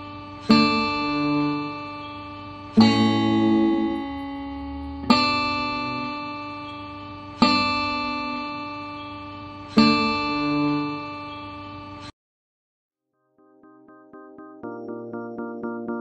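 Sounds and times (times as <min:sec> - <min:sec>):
guitars strumming chords: 0:00.0 - 0:12.1.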